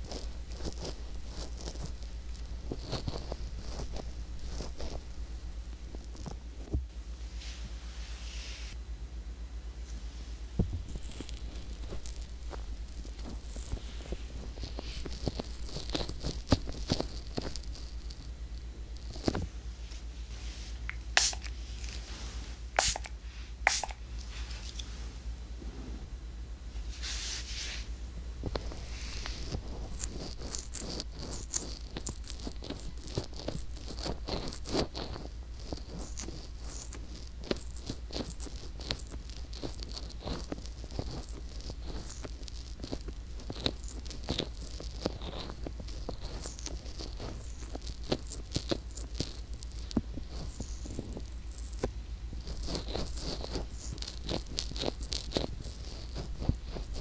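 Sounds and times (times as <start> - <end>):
fingers rubbing microphone: 0.0 - 6.8, 10.7 - 19.5, 28.4 - 57.0
low steady hum: 0.0 - 57.0.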